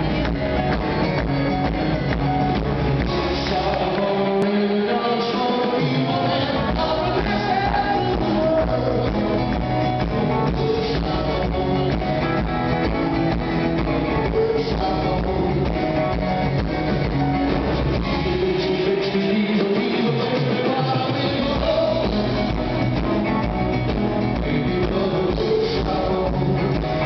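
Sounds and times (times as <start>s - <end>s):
bass guitar: 0.0s - 27.0s
drum kit: 0.0s - 27.0s
electric guitar: 0.0s - 27.0s
keyboard: 0.0s - 27.0s
male lead vocal: 2.9s - 12.8s, 13.8s - 16.6s, 17.8s - 23.2s, 23.9s - 27.0s.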